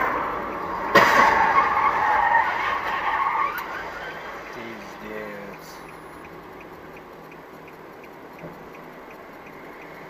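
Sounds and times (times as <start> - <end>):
car crash: 0.0 - 4.5
tyres skidding: 0.0 - 10.0.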